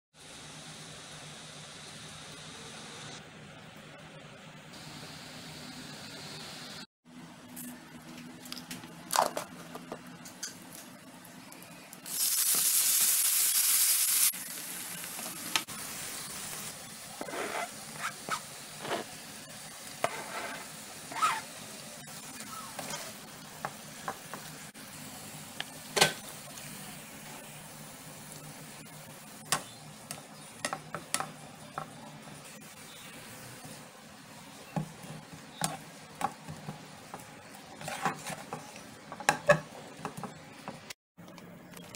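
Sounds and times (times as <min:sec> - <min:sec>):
food sizzling in oil: 0:10.1 - 0:40.9
spatula scraping and tapping pan: 0:20.0 - 0:21.4, 0:22.8 - 0:24.5, 0:29.5 - 0:32.0, 0:34.7 - 0:41.0.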